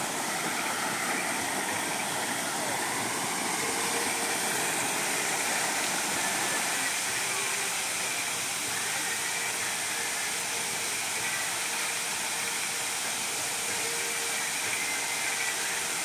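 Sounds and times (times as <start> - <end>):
fountain water jets splashing: 0.0 - 16.0.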